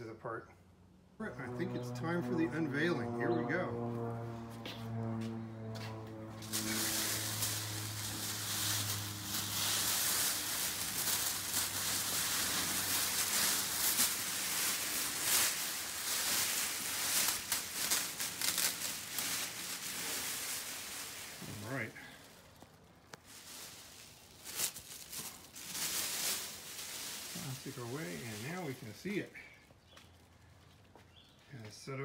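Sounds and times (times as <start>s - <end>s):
plastic bag crinkling: 5.6s - 30.5s.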